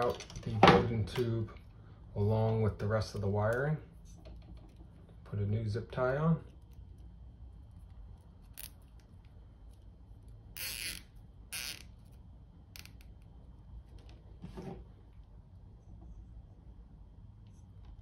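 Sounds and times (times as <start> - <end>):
zip tie ratcheting rasps: 10.5 - 12.0, 12.7 - 13.1.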